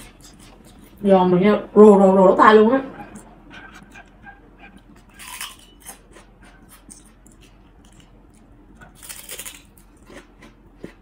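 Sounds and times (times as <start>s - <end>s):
crunching while chewing: 0.0s - 1.0s, 3.8s - 11.0s
prawn crackers crackling: 6.8s - 10.2s.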